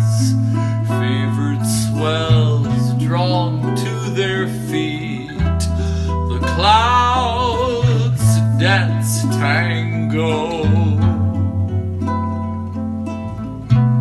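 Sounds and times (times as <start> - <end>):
man singing: 0.0 - 11.2
bass guitar: 0.0 - 14.0
strummed ukuleles: 0.0 - 14.0.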